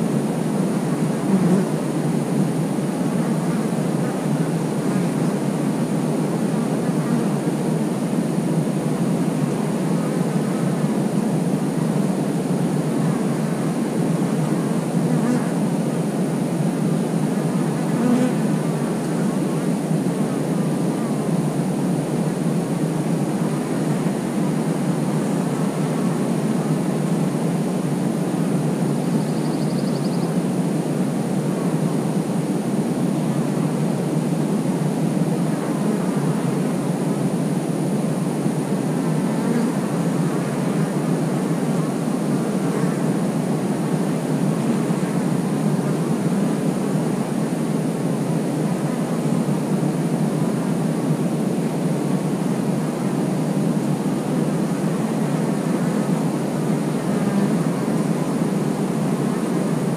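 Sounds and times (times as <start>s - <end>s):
bee colony buzzing: 0.1s - 30.1s, 34.6s - 37.1s, 38.2s - 44.0s, 44.6s - 47.6s, 54.0s - 59.9s
single bee flying close: 1.1s - 2.0s, 14.9s - 15.7s, 17.4s - 19.4s, 39.1s - 41.0s.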